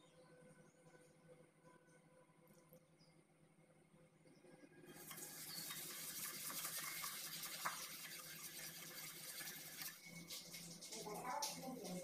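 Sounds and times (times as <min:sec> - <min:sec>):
whisk beating in glass bowl: 0:05.0 - 0:11.6.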